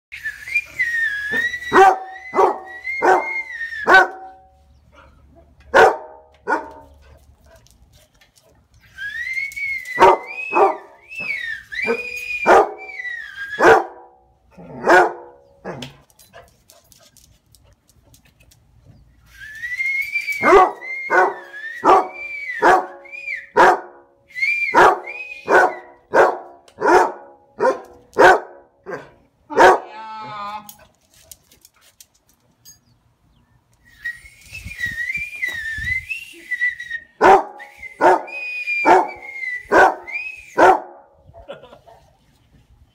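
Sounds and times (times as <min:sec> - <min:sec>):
dog howling and barking: 0:01.3 - 0:04.4, 0:10.0 - 0:13.0, 0:20.4 - 0:23.0, 0:24.7 - 0:30.0, 0:37.2 - 0:41.0.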